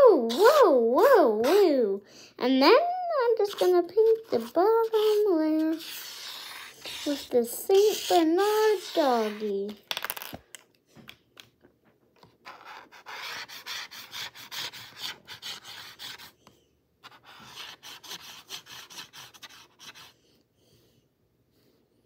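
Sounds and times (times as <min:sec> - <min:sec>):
marker pen rubbing on canvas: 0:03.3 - 0:09.8, 0:12.4 - 0:16.4, 0:17.0 - 0:20.2.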